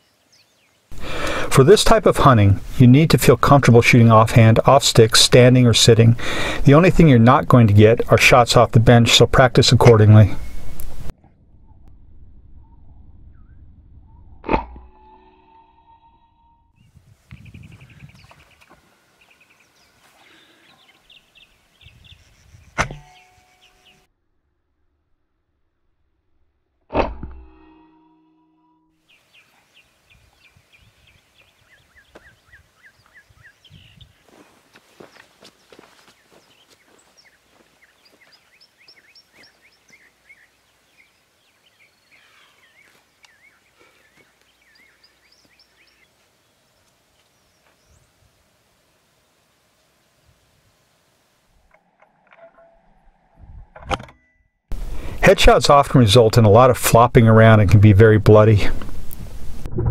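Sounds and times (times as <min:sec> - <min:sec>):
faint bird chirping: 0:00.0 - 0:00.9, 0:15.9 - 0:24.1, 0:29.1 - 0:48.3.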